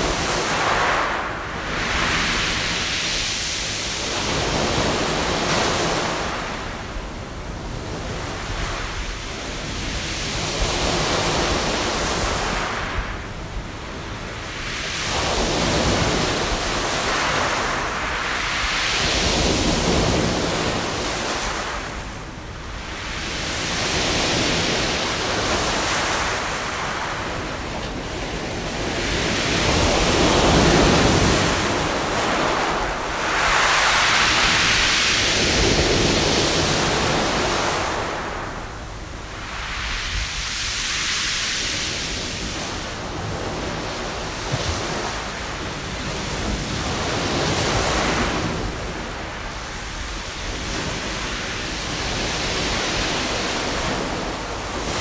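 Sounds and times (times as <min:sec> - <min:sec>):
waves breaking on pebble beach: 0:22.8 - 0:38.5.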